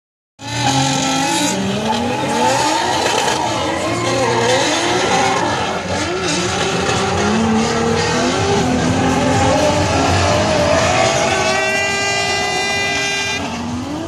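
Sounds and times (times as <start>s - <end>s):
car engines revving: 0.4s - 14.0s
tyres squealing: 0.5s - 13.0s.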